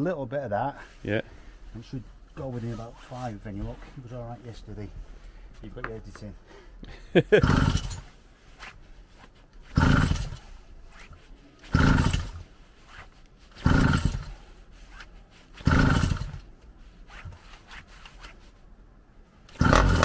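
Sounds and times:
recoil starter tugs: 7.4 - 8.1, 9.6 - 10.6, 11.6 - 12.5, 13.5 - 14.4, 15.6 - 16.5, 19.5 - 20.0
small engine turning over: 7.4 - 8.1, 9.7 - 10.4, 11.7 - 12.4, 13.6 - 14.3, 15.6 - 16.4, 19.5 - 20.0.

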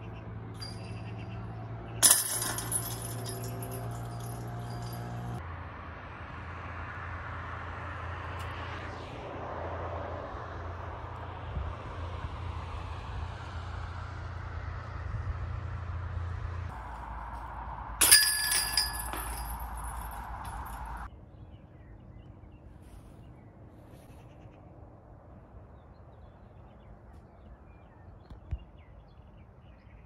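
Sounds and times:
chains jingling: 0.6 - 1.1, 2.0 - 5.4, 18.0 - 21.1
disc clanking on basket chains: 2.0 - 5.4, 18.0 - 21.1
car passing by: 5.2 - 18.0.

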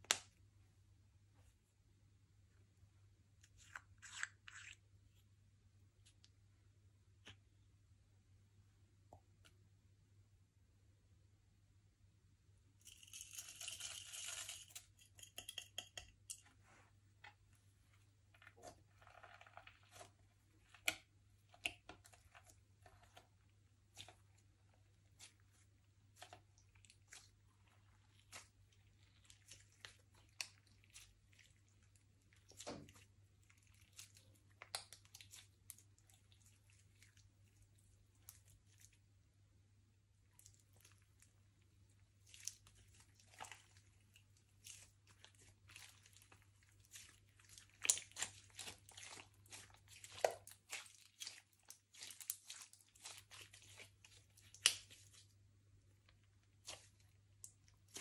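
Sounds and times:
slime squished by hand: 42.2 - 55.3.

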